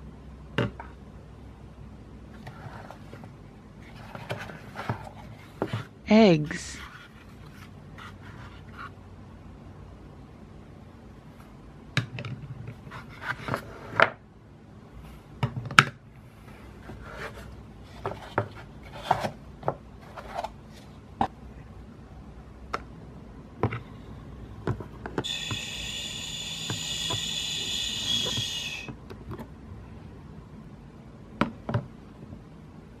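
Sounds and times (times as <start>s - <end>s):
high-pitched buzzing: 25.2s - 28.9s.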